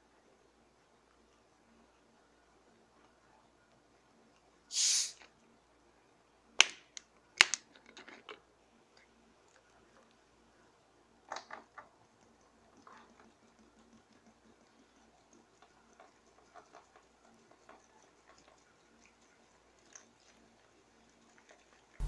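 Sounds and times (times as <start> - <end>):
carbonation hissing from bottle: 4.7 - 5.3
plastic bottle clicks and crackles: 6.6 - 8.4.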